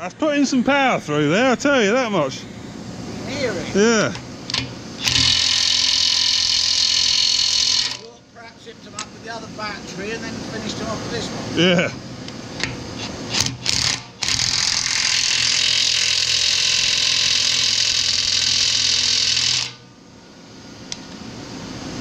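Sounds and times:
impact wrench hammering: 4.1 - 8.0, 12.6 - 19.8.

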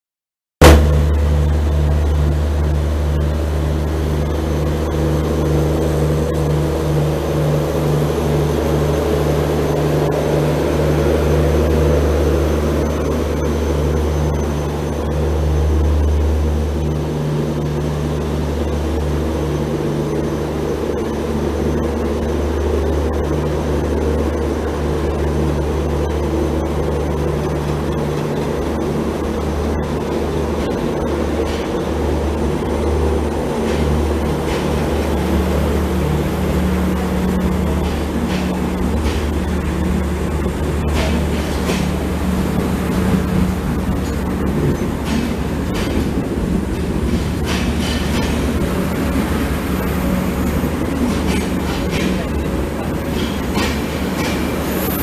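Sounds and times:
locomotive engine drone: 0.6 - 55.0
passenger coaches rolling past: 0.6 - 55.0.

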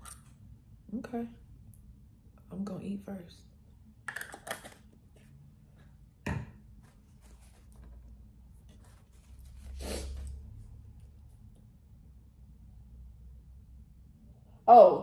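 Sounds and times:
cap screwed onto jar: 4.1 - 4.8.

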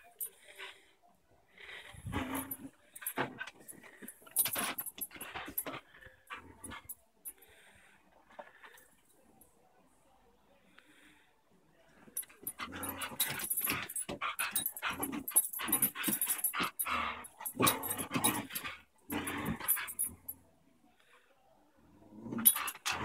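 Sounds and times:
dogs play-growling: 12.4 - 20.4, 22.0 - 23.0.

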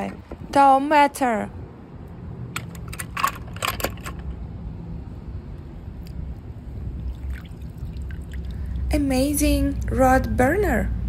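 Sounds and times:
low steady rumble: 0.0 - 11.0
light water splashes: 6.8 - 9.9.

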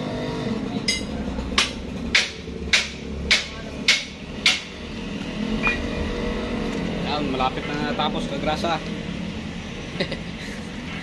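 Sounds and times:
hammer striking metal: 0.9 - 4.8, 5.6 - 6.0.

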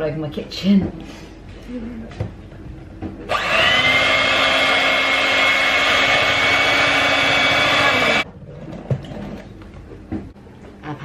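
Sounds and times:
electric hand mixer whine: 3.3 - 8.2.

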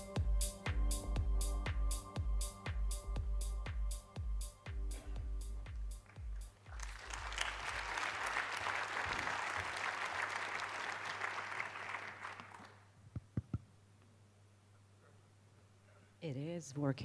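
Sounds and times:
electronic music with kick drum: 0.0 - 6.6
audience applause: 6.0 - 12.9.

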